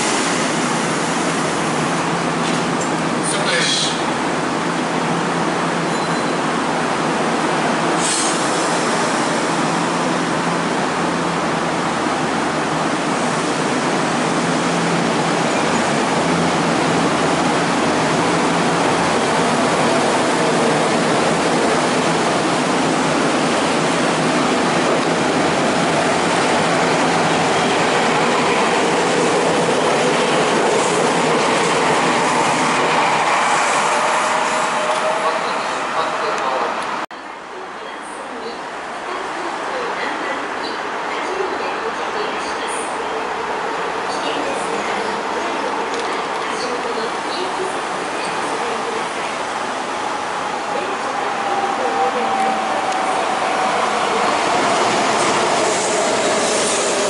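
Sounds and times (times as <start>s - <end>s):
electric train running past: 8.5s - 37.0s, 46.6s - 57.0s
wheel and rail noise: 44.1s - 57.0s.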